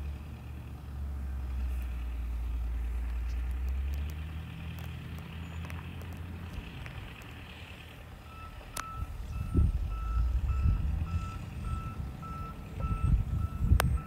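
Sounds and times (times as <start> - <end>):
low rumbling: 0.0 - 14.0
vehicle reversing alarm beeping: 8.2 - 14.0.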